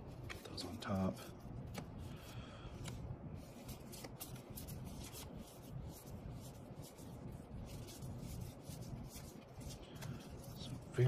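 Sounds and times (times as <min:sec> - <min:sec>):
cards sliding and flicking: 0:01.6 - 0:02.0, 0:02.8 - 0:05.6.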